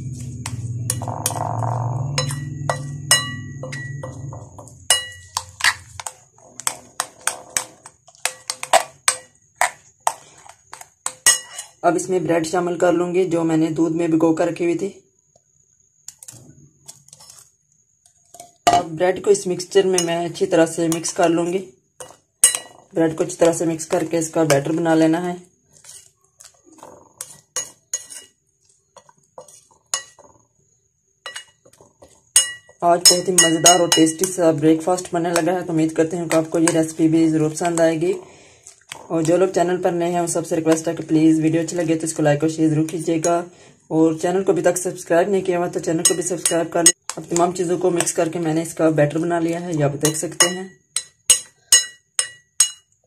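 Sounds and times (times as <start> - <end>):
spoon scraping wet mixture: 0.0 - 11.8, 16.0 - 18.6, 19.3 - 30.6, 31.2 - 43.5, 44.2 - 53.0
spoon clinking against glass bowl: 2.0 - 7.3, 11.0 - 11.8, 19.9 - 20.2, 22.0 - 22.9, 29.4 - 30.3, 31.2 - 31.6, 32.3 - 34.4, 46.0 - 47.2, 50.0 - 53.0.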